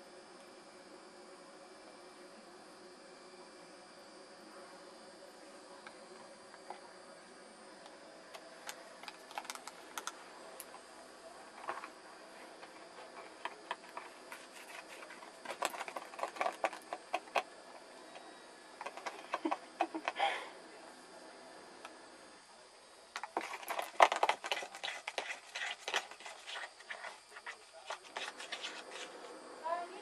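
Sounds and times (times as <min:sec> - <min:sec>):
kittens scrambling in a basket: 0:11.6 - 0:17.5, 0:23.2 - 0:29.4.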